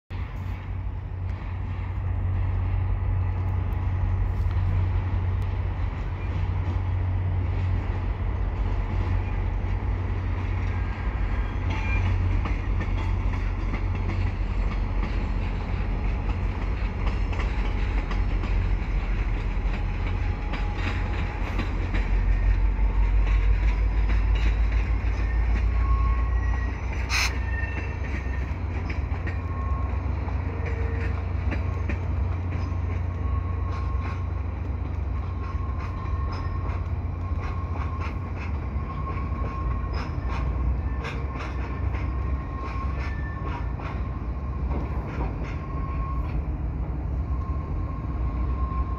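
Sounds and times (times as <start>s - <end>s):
diesel locomotive engine rumble: 0.1s - 48.9s
train coaches rolling over rails: 0.1s - 48.9s
wheel squeal: 20.6s - 34.4s, 35.2s - 46.5s.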